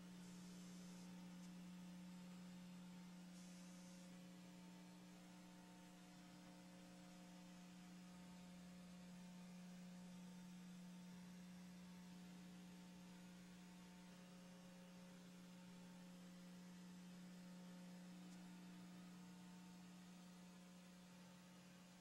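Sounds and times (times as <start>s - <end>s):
faint electrical hum: 0.0s - 22.0s.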